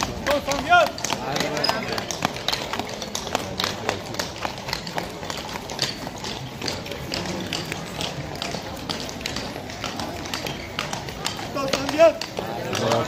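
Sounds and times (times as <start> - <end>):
hooves clip-clopping on pavement: 0.0 - 13.0
people's voices: 0.0 - 13.0.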